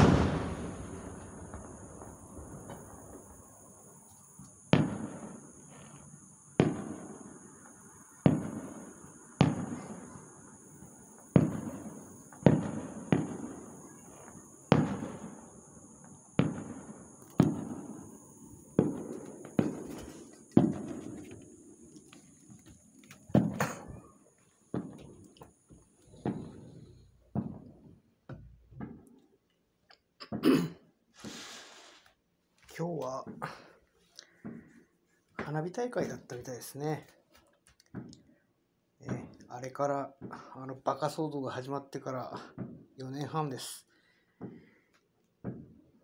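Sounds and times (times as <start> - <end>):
distant fireworks bangs: 0.0 - 29.1, 34.3 - 34.7, 45.4 - 45.8
fireworks echo: 0.0 - 29.2, 45.4 - 45.9.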